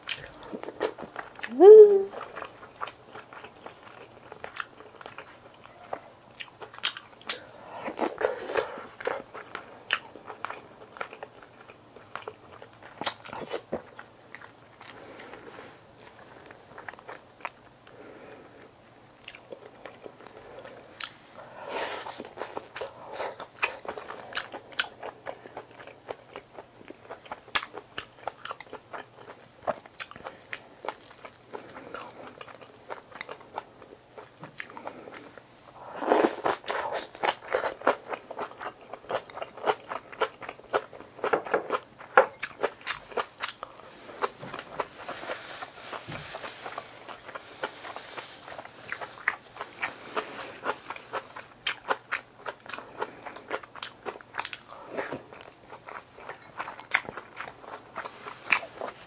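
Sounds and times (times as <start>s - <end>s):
person chewing and biting: 6.3s - 15.4s, 19.2s - 35.4s, 36.0s - 45.0s, 46.4s - 59.0s.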